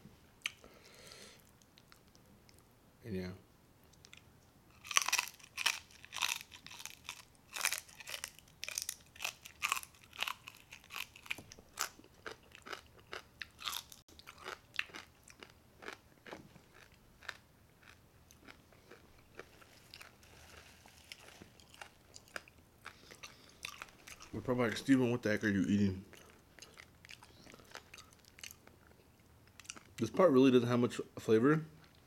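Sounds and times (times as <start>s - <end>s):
crunching and chewing pork rinds: 4.0s - 24.4s, 26.1s - 30.0s.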